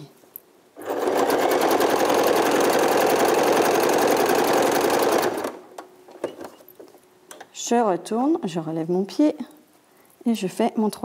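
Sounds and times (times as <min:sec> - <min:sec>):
electric sewing machine running: 0:00.8 - 0:05.7.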